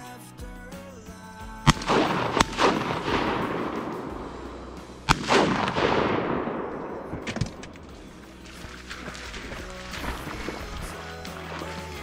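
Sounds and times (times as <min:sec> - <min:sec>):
shotgun shots with echo: 0:01.7 - 0:08.4.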